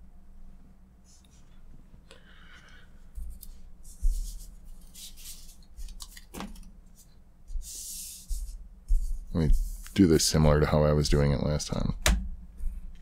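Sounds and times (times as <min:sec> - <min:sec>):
cards rustling and sliding: 0:03.4 - 0:08.5.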